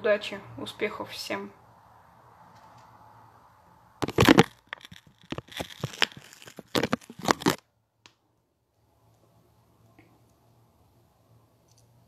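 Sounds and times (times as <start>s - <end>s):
fingers rubbing phone microphone: 4.0s - 7.6s.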